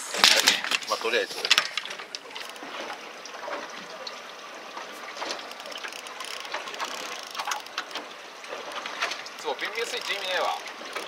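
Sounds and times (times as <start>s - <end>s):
wind and water hiss: 0.0s - 11.0s
fishing reel winding: 2.4s - 2.6s, 5.4s - 8.0s, 9.4s - 11.0s
faint ticks: 5.4s - 8.1s.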